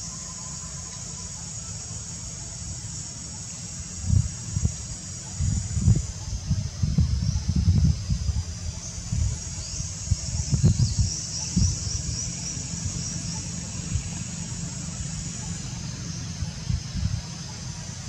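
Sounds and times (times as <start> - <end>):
insect chirring: 0.0 - 18.0
wind buffeting microphone: 4.0 - 18.0.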